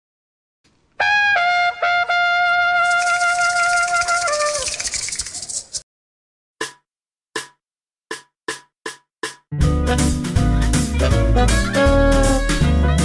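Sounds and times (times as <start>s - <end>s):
brass-like jingle melody: 1.0s - 4.7s, 9.6s - 13.0s.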